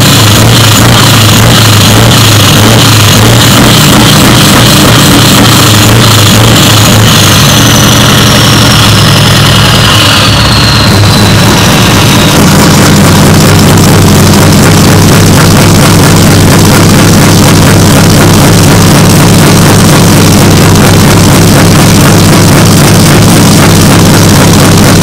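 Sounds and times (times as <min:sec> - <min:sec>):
diesel engine running loudly: 0:00.0 - 0:25.0
high whine sliding down: 0:00.0 - 0:25.0.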